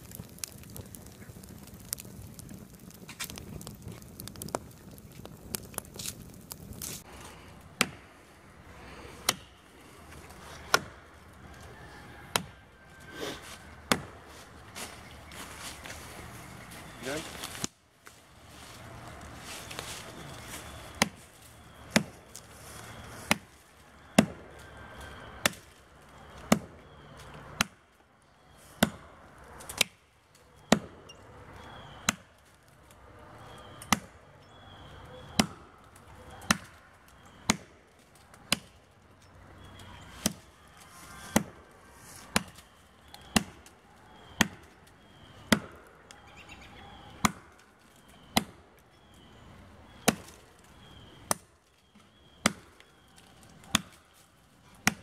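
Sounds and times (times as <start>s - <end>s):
axe chopping tree trunk: 7.7s - 8.1s, 9.2s - 9.6s, 10.2s - 11.0s, 12.3s - 12.6s, 13.4s - 14.2s, 21.0s - 21.2s, 21.9s - 22.5s, 23.3s - 23.5s, 24.1s - 24.5s, 25.4s - 27.0s, 27.6s - 27.8s, 28.8s - 29.0s, 30.6s - 31.0s, 31.8s - 32.3s, 33.7s - 34.2s, 35.3s - 35.6s, 36.4s - 37.7s, 38.3s - 38.8s, 40.1s - 40.4s, 41.2s - 41.6s, 42.2s - 45.9s, 47.2s - 47.5s, 48.1s - 48.6s, 49.9s - 54.0s, 54.8s - 55.0s.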